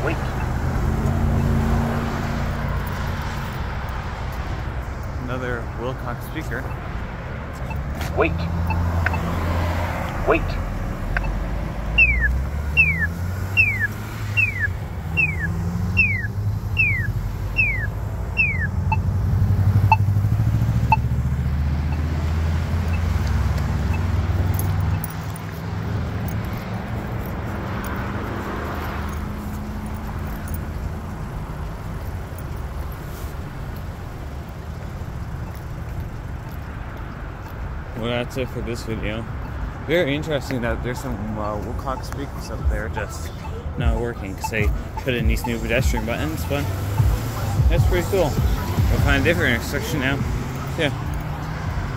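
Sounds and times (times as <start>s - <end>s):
road traffic: 0.0s - 51.9s
vehicle passing: 0.0s - 51.9s
locator ticks: 7.6s - 9.4s, 10.0s - 11.4s, 41.6s - 49.3s
falling electronic chirp: 12.0s - 19.1s.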